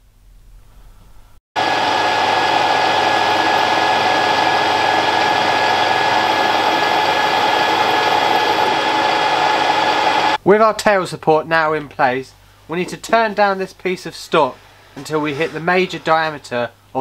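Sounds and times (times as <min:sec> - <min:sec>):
lathe whining: 0:01.6 - 0:10.4.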